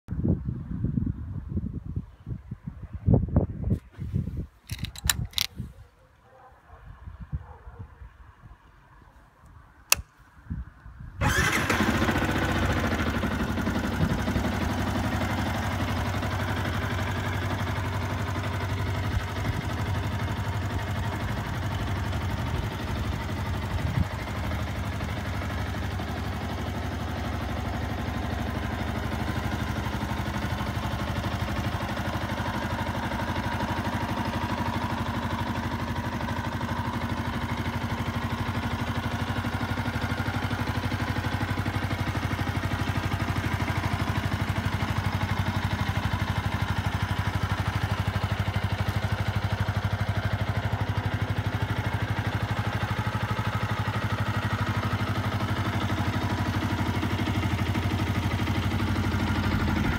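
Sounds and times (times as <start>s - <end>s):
starter click: 4.7s - 5.6s, 9.9s - 10.2s
motorcycle engine idling: 11.2s - 59.9s.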